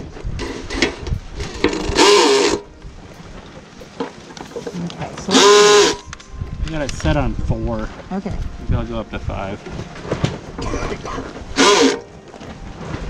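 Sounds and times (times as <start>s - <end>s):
cordless drill running: 11.6s - 12.0s.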